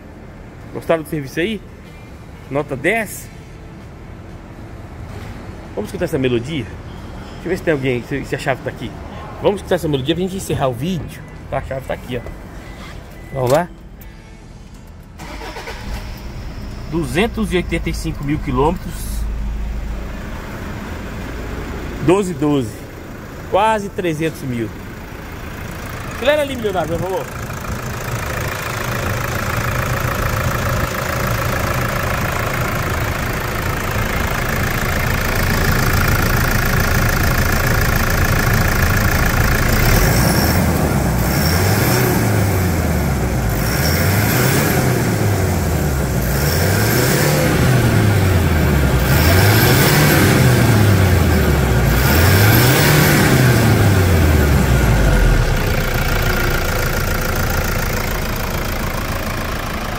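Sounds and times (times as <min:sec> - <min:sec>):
diesel engine idling and revving: 0:14.7 - 0:59.9.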